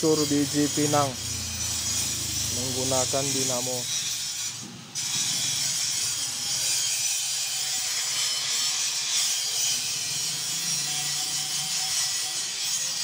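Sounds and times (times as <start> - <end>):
nut crushing machine hissing: 0.0 - 9.0.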